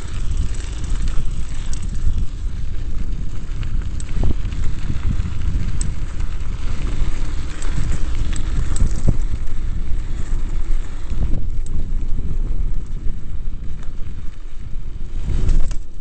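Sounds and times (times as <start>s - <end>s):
bike clicks and rattles: 0.0s - 16.0s
tyres on rough road: 0.0s - 16.0s
wind buffeting microphone: 0.0s - 16.0s.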